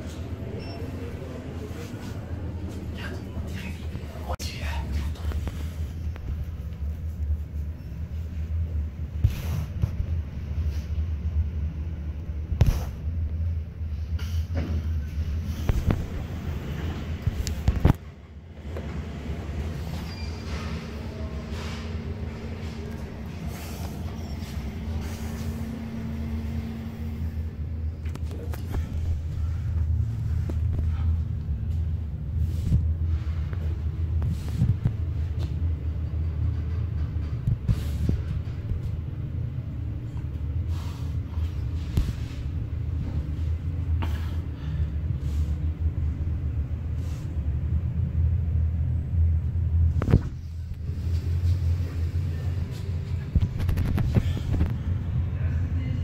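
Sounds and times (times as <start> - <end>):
lift car low rumble: 0.0 - 56.0.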